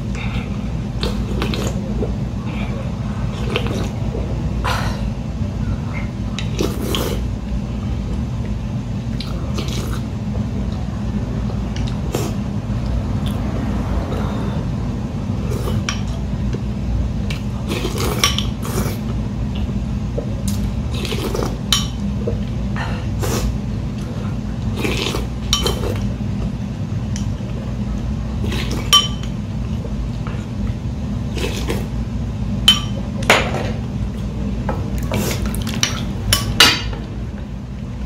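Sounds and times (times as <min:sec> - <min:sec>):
steady low hum: 0:00.0 - 0:38.0
slurping noodles: 0:06.5 - 0:07.3, 0:09.2 - 0:10.1, 0:17.4 - 0:19.1, 0:20.9 - 0:21.6, 0:23.2 - 0:26.0, 0:28.4 - 0:28.9, 0:31.3 - 0:31.9.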